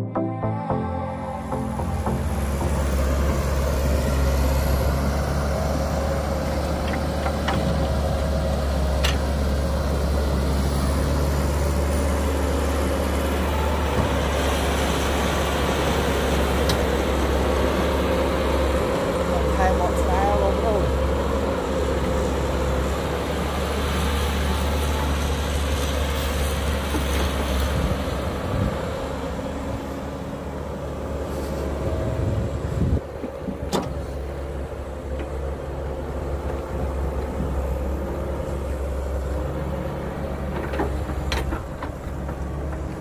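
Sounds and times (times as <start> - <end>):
excavator diesel engine running: 0.0 - 43.0.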